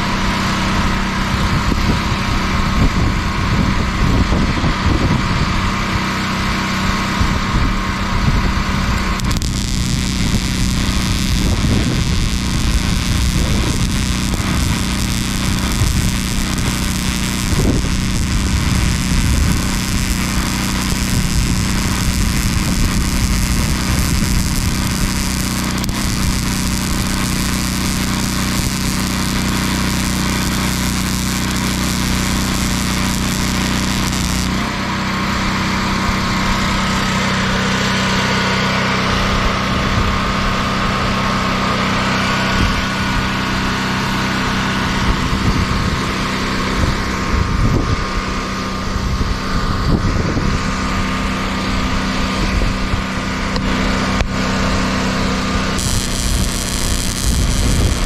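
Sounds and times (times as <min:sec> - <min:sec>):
small engine running: 0:05.8 - 0:47.3, 0:53.3 - 0:58.0
welding arc crackling hiss: 0:09.0 - 0:34.8, 0:55.8 - 0:58.0.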